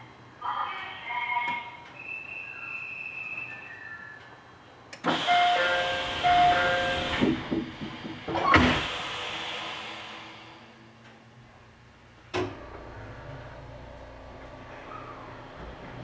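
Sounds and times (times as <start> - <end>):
train doors shutting with knock: 5.0 - 10.2
air hiss: 5.1 - 10.8.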